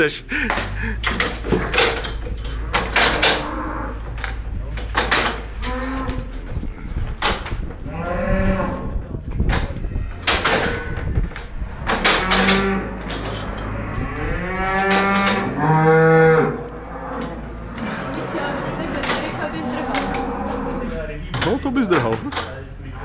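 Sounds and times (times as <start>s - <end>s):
cow mooing loudly: 2.5s - 4.0s, 5.6s - 6.9s, 7.8s - 8.9s, 13.6s - 21.0s.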